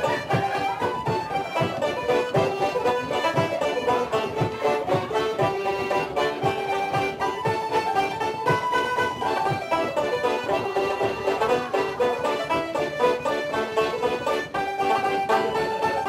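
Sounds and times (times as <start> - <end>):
frame drum thumps: 0.0 - 13.4
lively folk tune: 0.0 - 16.0.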